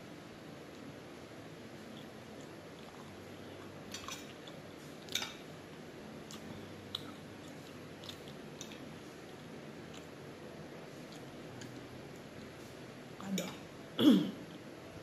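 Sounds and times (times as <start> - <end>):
chewing: 1.9 - 5.3, 6.2 - 10.2, 11.0 - 12.4.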